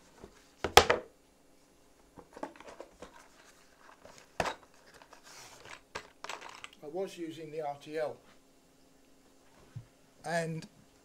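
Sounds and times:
light rustling and clatter: 0:02.1 - 0:06.8.

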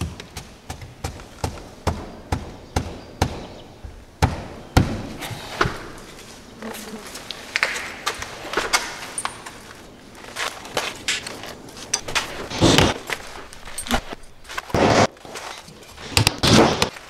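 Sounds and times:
footsteps: 0:05.0 - 0:17.0
tool belt jingling: 0:08.7 - 0:14.7.

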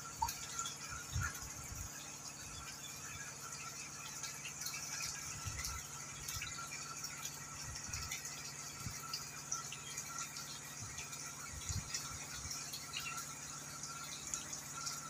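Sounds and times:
faint steady hum: 0:00.0 - 0:15.0
fish splashing and slurping: 0:00.0 - 0:15.0.

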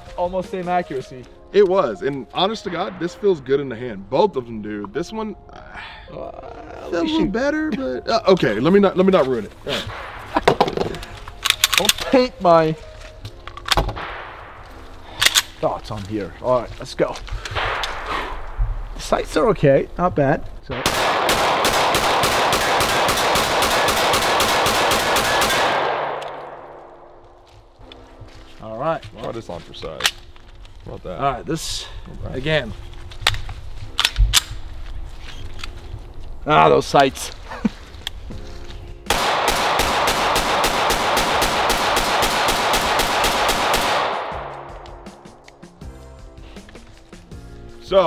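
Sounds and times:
gunshot echo: 0:09.8 - 0:10.8, 0:13.9 - 0:14.6, 0:17.5 - 0:18.6, 0:20.7 - 0:27.1, 0:39.1 - 0:45.4
pistol shots in rapid succession: 0:20.8 - 0:26.2, 0:39.1 - 0:44.6.

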